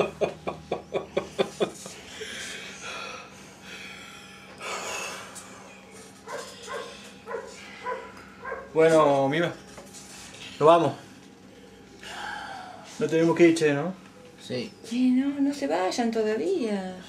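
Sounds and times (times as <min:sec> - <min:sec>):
man laughing: 0:00.0 - 0:02.5
breathy snorts: 0:02.1 - 0:05.9.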